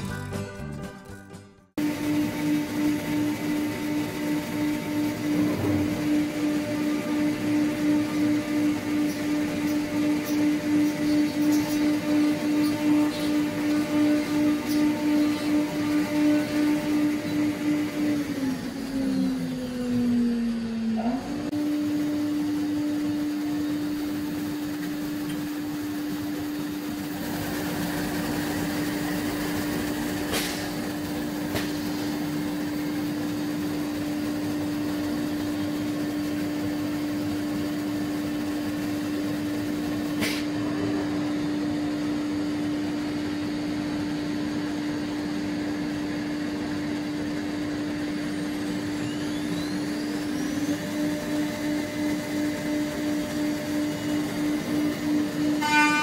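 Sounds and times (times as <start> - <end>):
cnc router spindle humming: 1.8 - 56.0.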